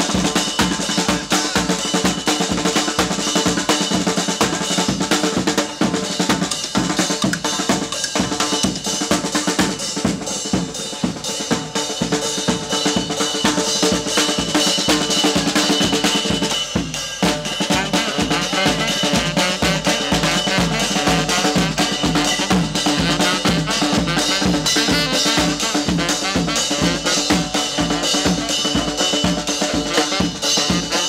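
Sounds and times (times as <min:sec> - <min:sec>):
bass drum and cymbal: 0:00.0 - 0:31.0
snare drum beating: 0:13.5 - 0:31.0.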